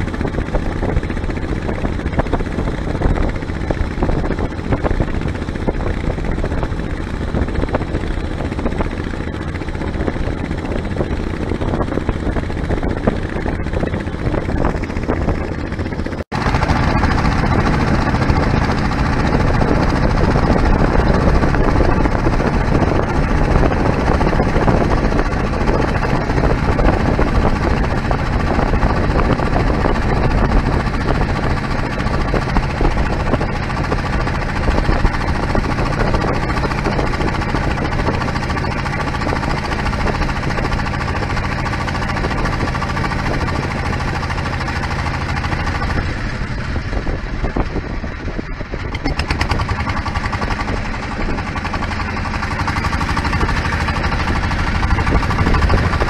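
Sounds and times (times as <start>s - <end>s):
small boat motor running: 0.0s - 56.0s.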